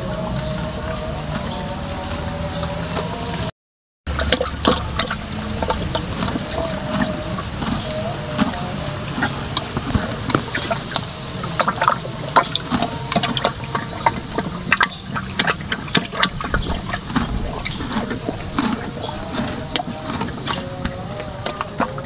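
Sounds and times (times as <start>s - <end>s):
horse slurping water: 0.0s - 3.5s, 4.1s - 22.0s
small clicks and splashes: 4.1s - 8.5s.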